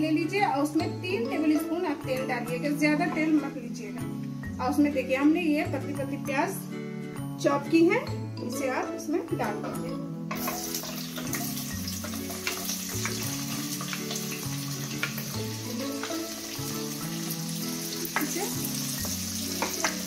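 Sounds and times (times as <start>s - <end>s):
soft background music: 0.0s - 20.0s
onions sizzling in hot oil: 10.3s - 20.0s.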